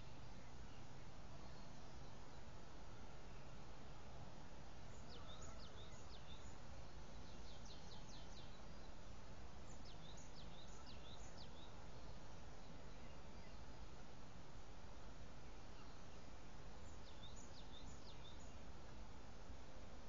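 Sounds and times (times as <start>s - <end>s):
low background hiss: 0.0s - 20.0s.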